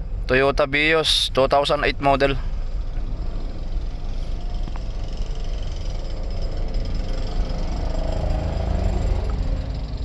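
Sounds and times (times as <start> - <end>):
car engine running: 0.0 - 10.0
rapid rattling clatter: 2.6 - 10.0.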